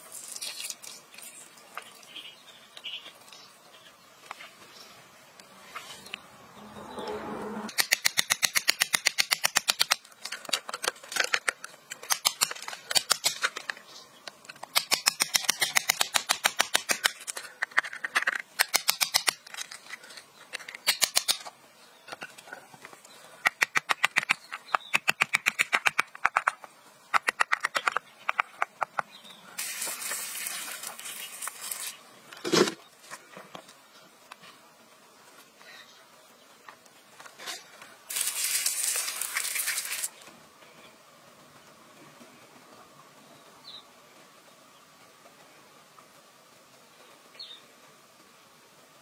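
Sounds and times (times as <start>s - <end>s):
rubbing hiss: 29.5s - 32.6s, 38.0s - 40.2s
tool scraping gravelly soil: 29.6s - 32.9s, 37.3s - 40.2s.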